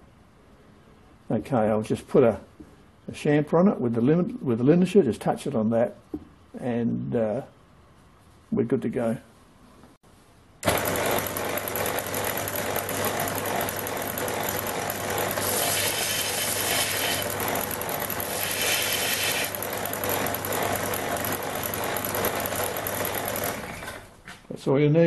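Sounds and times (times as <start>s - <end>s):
belt grinder motor hum: 10.6s - 24.1s
grinding hiss: 15.4s - 17.3s, 18.3s - 19.5s.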